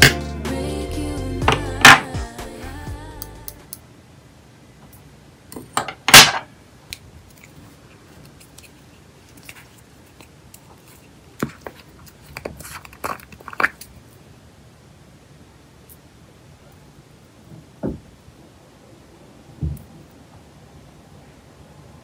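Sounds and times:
plastic jar lid twisted open: 11.4s - 13.9s.

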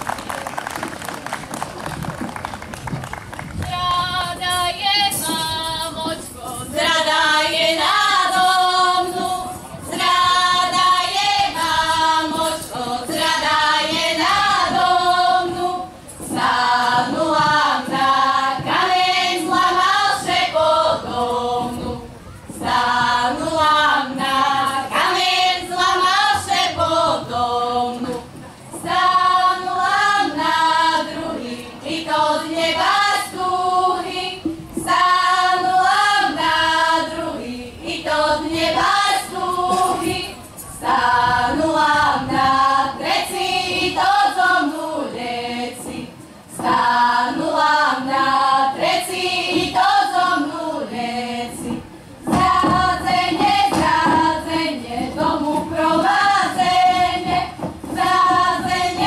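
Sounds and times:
women singing folk song: 3.6s - 59.0s.

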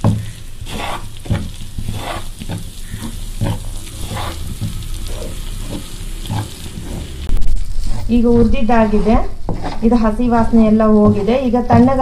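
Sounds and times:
faint sizzle: 0.0s - 9.0s
wooden spatula scraping a pan: 0.0s - 12.0s.

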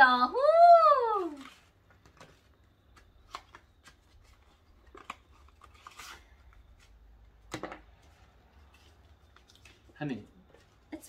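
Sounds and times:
paper envelope crinkling: 3.2s - 6.7s.

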